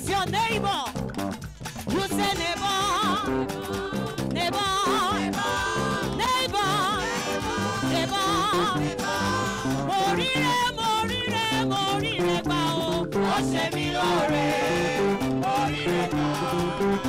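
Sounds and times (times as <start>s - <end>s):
instrumental accompaniment: 0.1s - 17.0s
woman singing with vibrato: 1.9s - 17.0s
backing singers: 4.8s - 10.5s, 12.2s - 17.0s.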